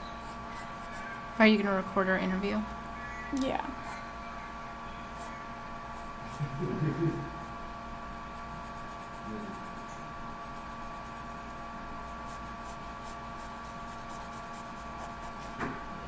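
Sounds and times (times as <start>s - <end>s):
steady electrical hum: 0.0s - 16.0s
pen scratching on paper: 0.2s - 2.0s, 8.3s - 15.6s.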